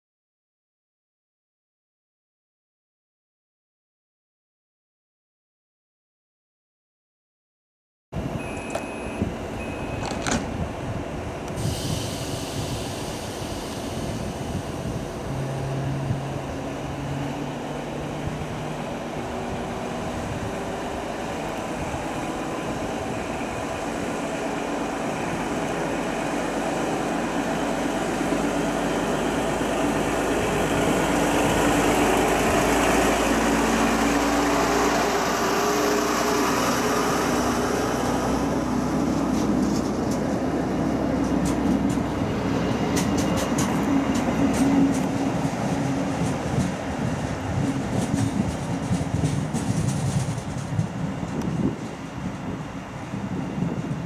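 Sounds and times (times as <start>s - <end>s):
diesel railcar engine: 8.2s - 54.0s
short beeps: 8.4s - 10.3s
clunk: 10.0s - 10.5s.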